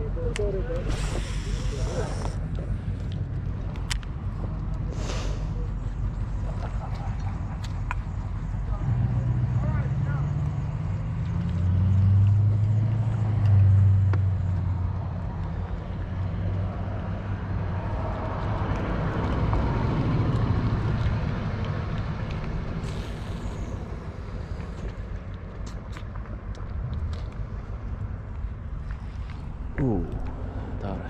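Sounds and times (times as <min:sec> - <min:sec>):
engine humming: 0:00.0 - 0:31.0
rush of noise: 0:00.7 - 0:03.5.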